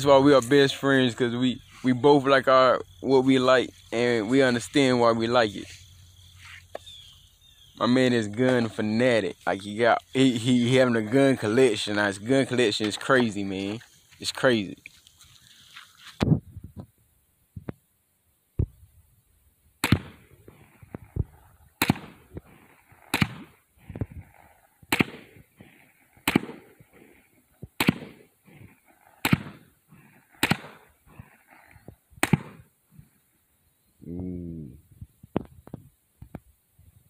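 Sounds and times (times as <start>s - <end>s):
rifle shots with echo: 19.8s - 20.8s, 21.8s - 23.6s, 24.9s - 25.6s, 26.2s - 27.1s, 27.8s - 29.7s, 30.3s - 31.2s, 32.2s - 32.7s.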